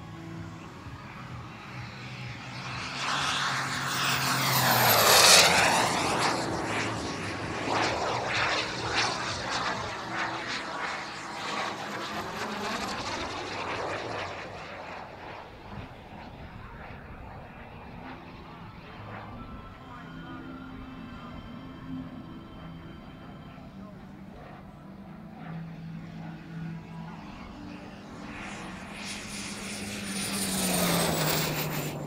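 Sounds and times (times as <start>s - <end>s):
model jet turbine whine: 0.0s - 32.0s
jet rush swirling: 27.6s - 32.0s.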